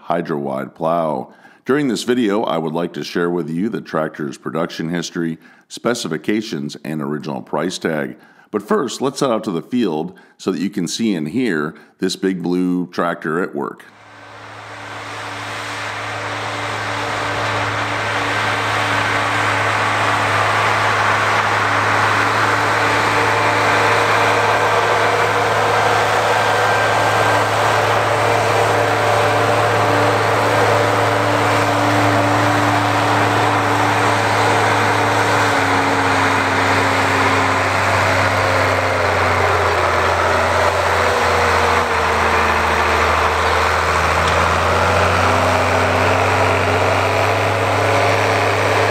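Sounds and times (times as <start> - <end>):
tractor diesel engine under load: 13.9 - 48.9.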